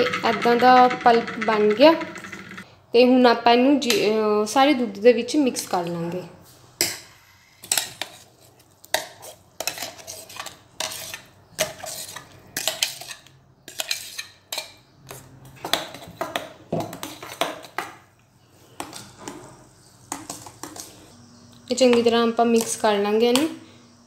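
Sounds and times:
spoon scraping steel bowl: 0.0 - 2.6, 7.4 - 15.3.

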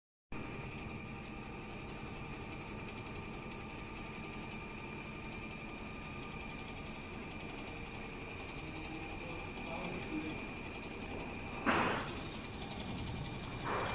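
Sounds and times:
sewing machine stitching: 0.4 - 13.9.

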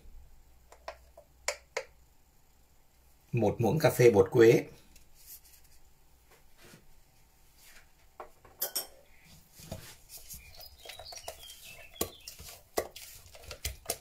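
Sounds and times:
sharp knocks and clinks: 8.4 - 9.0
spatula scraping batter in bowl: 9.5 - 14.0.

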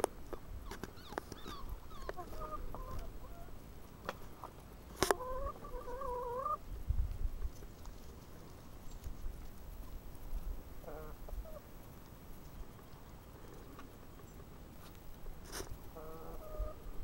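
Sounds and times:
hen clucking: 0.6 - 4.2, 5.0 - 6.6, 10.8 - 11.7, 15.9 - 17.0.

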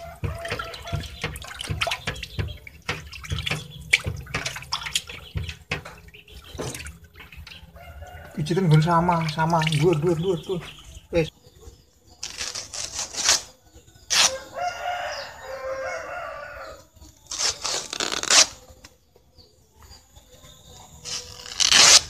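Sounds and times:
rooster crowing: 0.0 - 1.6, 7.7 - 8.8, 14.3 - 16.9
banana leaves rustling: 12.2 - 14.4, 17.2 - 18.9, 21.0 - 22.0.

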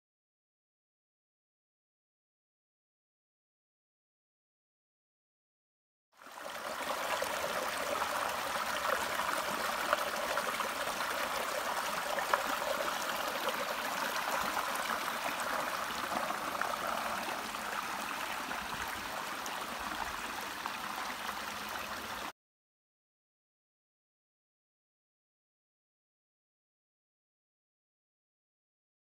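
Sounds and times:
water rushing over stones: 6.3 - 21.9.

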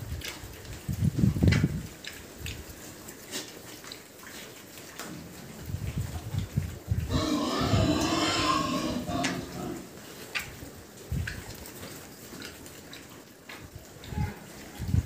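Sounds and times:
piglets grunting: 7.1 - 9.9.

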